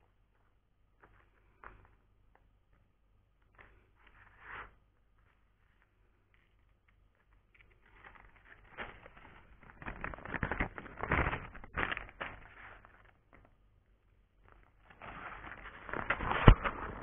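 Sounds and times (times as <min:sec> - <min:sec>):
plastic bag crinkling: 0:05.6 - 0:13.6, 0:14.4 - 0:17.0.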